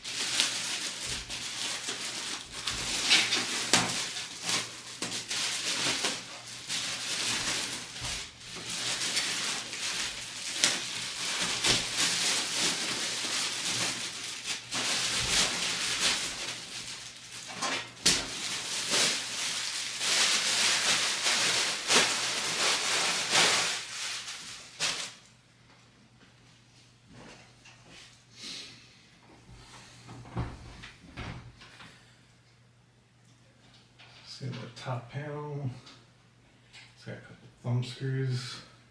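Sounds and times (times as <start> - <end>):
packaging rustling: 0.0 - 25.3.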